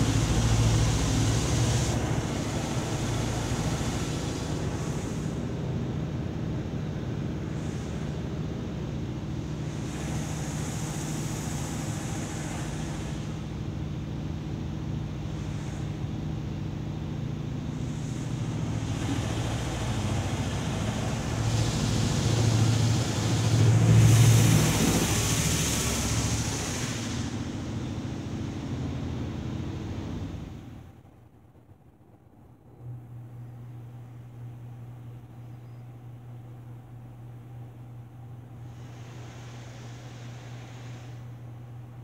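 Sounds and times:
water jets hissing against car: 0.0s - 5.8s, 6.6s - 30.8s, 38.4s - 42.0s
steady low hum: 0.0s - 42.0s.

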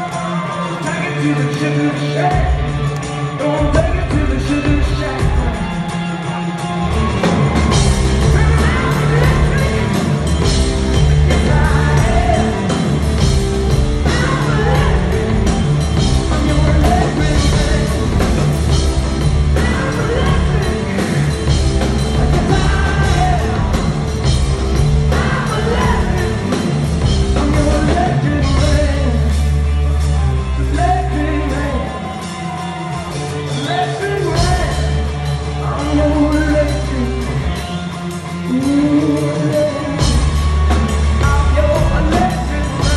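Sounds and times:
man singing into a microphone: 0.0s - 6.2s, 8.2s - 12.8s, 14.0s - 15.5s, 16.2s - 18.4s, 19.5s - 21.6s, 22.2s - 23.9s, 25.1s - 26.6s, 27.4s - 29.5s, 30.4s - 32.2s, 33.4s - 42.9s
live rock band playing: 0.0s - 42.9s.

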